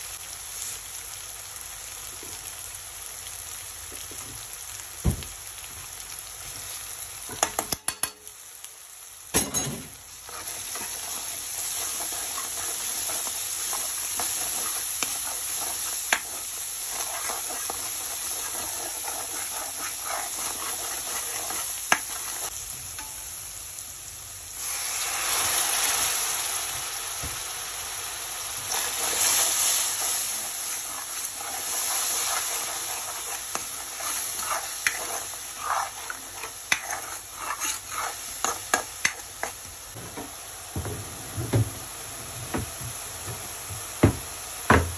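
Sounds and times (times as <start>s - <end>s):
food sizzling in oil: 0.0s - 44.9s
spoon stirring: 10.3s - 22.5s, 30.0s - 39.6s.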